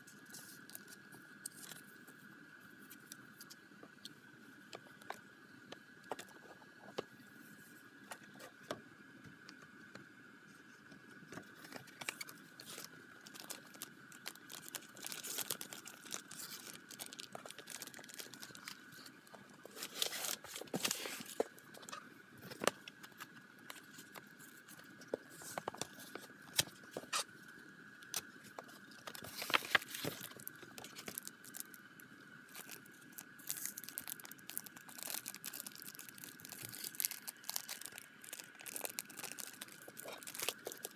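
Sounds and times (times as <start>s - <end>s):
plastic packaging crinkling: 11.5s - 21.9s, 28.6s - 40.9s.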